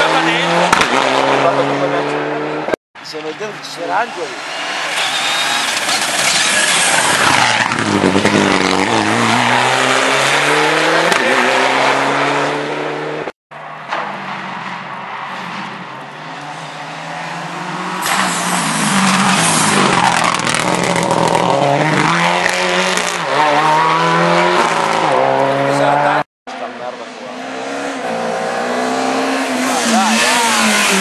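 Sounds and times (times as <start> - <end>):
rally car accelerating away: 5.0 - 13.2, 16.2 - 31.0.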